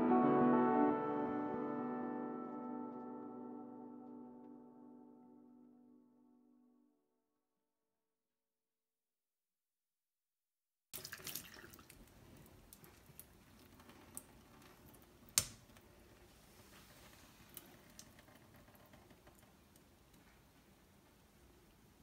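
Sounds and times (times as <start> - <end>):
water dripping into metal sink: 11.0 - 14.3.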